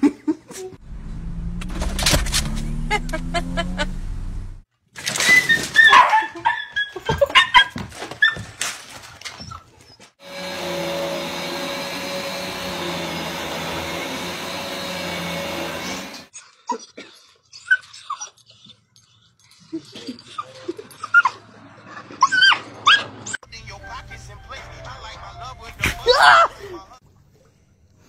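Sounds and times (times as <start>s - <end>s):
dog yelping: 5.4s - 8.5s, 22.2s - 23.4s
vacuum cleaner humming: 10.2s - 16.3s.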